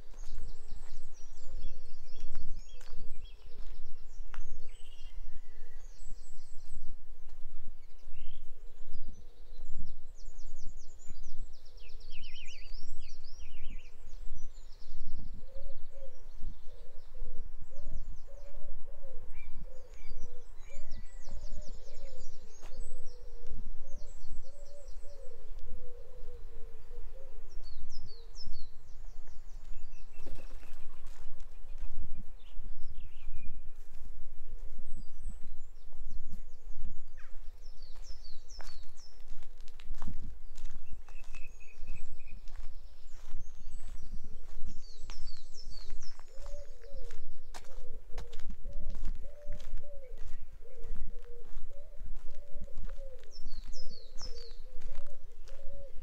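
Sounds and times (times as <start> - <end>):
songbirds chirping and trilling: 0.0 - 56.0
pigeon cooing: 15.4 - 27.6, 46.2 - 56.0
footsteps: 29.6 - 32.0, 37.3 - 55.7.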